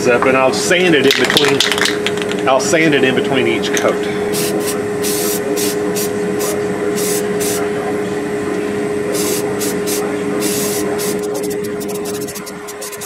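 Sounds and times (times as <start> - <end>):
steady hum: 0.0 - 13.0
aerosol can spraying: 4.4 - 7.6, 9.2 - 13.0.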